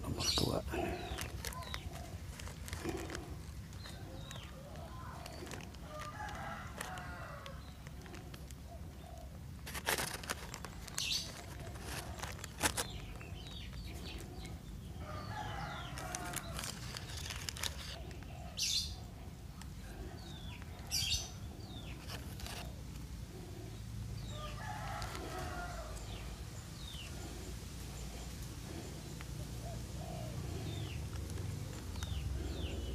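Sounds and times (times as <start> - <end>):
rooster crowing: 5.9 - 7.6, 15.0 - 16.8, 24.3 - 26.4.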